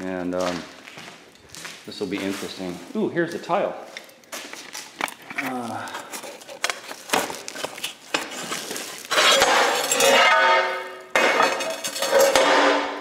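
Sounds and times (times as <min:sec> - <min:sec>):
porcelain tiles clinking and scraping: 0:04.8 - 0:10.5, 0:11.2 - 0:12.5.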